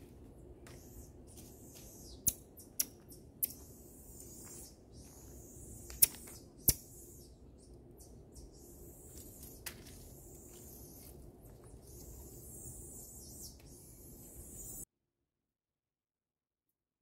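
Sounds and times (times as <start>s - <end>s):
sharp click: 2.2s - 3.6s, 5.9s - 6.9s.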